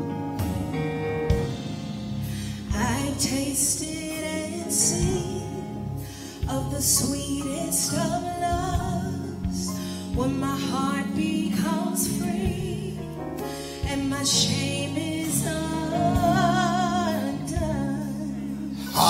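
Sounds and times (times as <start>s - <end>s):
person singing with vibrato: 13.9s - 19.0s.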